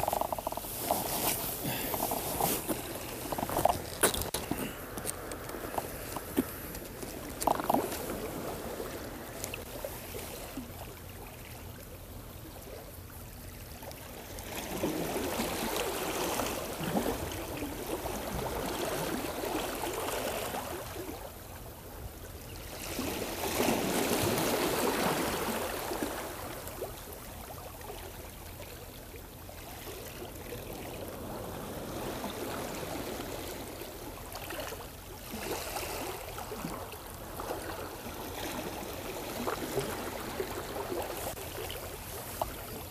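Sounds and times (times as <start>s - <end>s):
waves washing against seawall: 30.6s - 42.9s.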